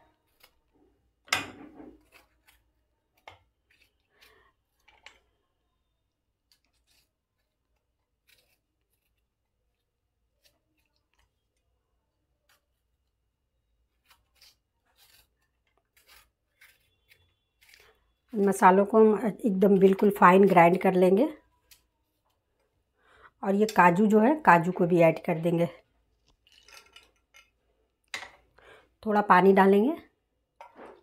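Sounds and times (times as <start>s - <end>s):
knife cutting tomato: 0.1s - 0.7s, 1.7s - 4.9s, 6.4s - 11.6s, 13.8s - 21.9s.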